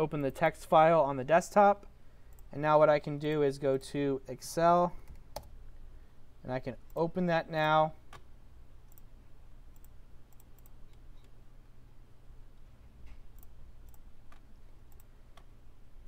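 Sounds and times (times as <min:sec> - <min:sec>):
computer mouse clicks: 0:08.9 - 0:09.1, 0:09.7 - 0:11.4, 0:13.0 - 0:15.5.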